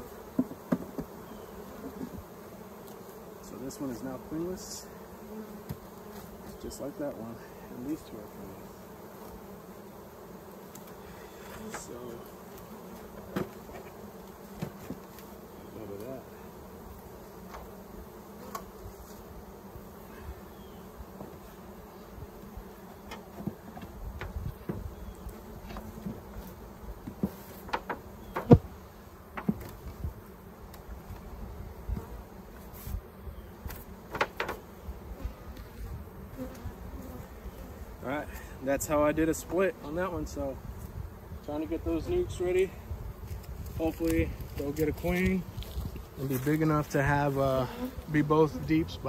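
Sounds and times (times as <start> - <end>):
honeybees buzzing: 0.0 - 49.0
knocks on wooden hive boxes: 0.3 - 1.2, 5.6 - 6.2, 13.0 - 15.1, 23.0 - 24.9, 25.6 - 28.7, 29.3 - 30.0, 33.7 - 34.7.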